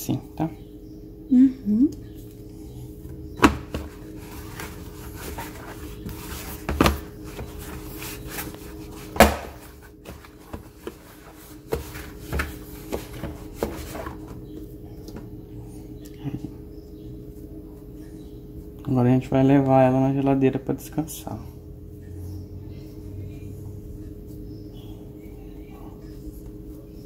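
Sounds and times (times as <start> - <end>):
dough thumping in plastic bowl: 3.4 - 4.0, 9.1 - 11.0.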